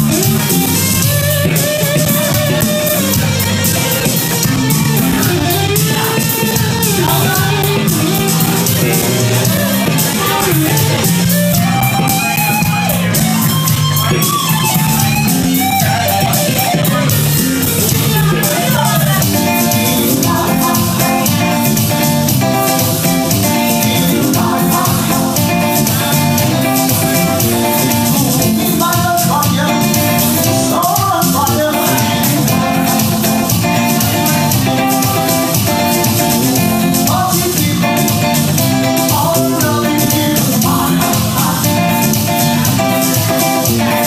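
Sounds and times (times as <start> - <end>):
melody line: 0.0 - 30.6
drum kit: 0.0 - 44.0
electric bass: 0.0 - 44.0
electric guitar: 0.0 - 44.0.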